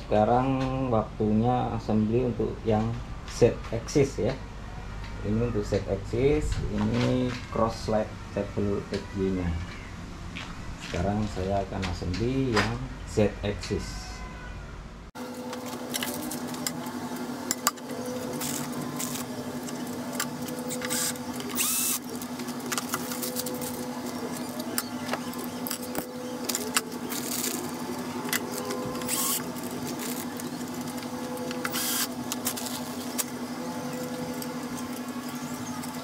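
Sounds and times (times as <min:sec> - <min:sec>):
steady low hum: 0:00.0 - 0:36.0
plastic bags rustling: 0:15.3 - 0:36.0.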